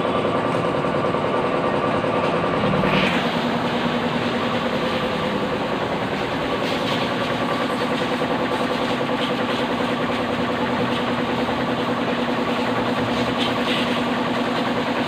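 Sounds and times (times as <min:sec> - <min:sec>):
pressure washer hum: 0:00.0 - 0:15.0
water jet spraying: 0:02.6 - 0:15.0.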